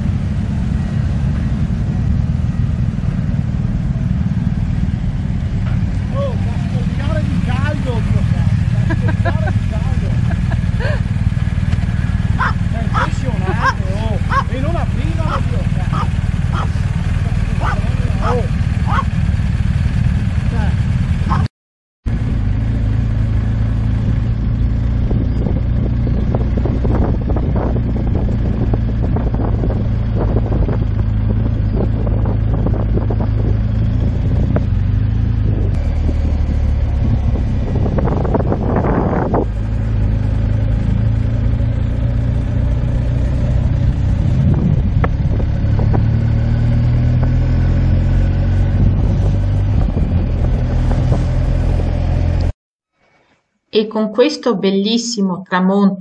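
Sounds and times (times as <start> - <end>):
motorcycle engine running: 0.0 - 21.5, 22.1 - 52.5
wind buffeting microphone: 5.5 - 19.7, 23.9 - 41.8, 42.5 - 52.0.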